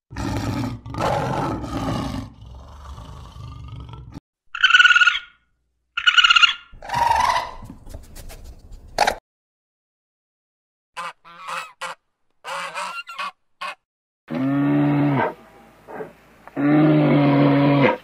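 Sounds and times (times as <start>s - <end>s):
lion growling: 0.1s - 4.2s
raccoon trilling calls: 4.5s - 5.4s, 6.0s - 7.6s.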